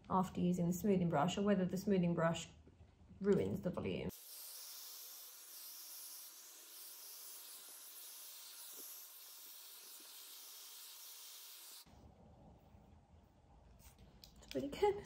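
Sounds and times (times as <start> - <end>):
hair styler blowing air: 4.1 - 11.9.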